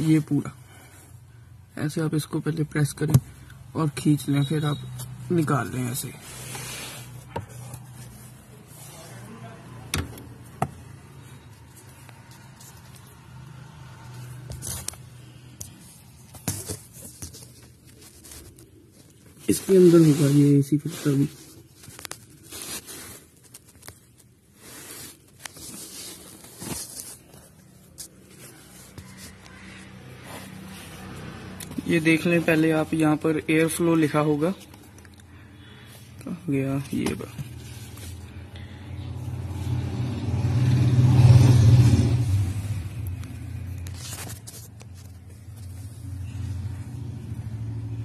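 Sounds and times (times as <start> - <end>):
filter rustling and scraping plastic: 5.0 - 9.4, 10.1 - 13.5, 14.2 - 38.4, 43.2 - 46.4.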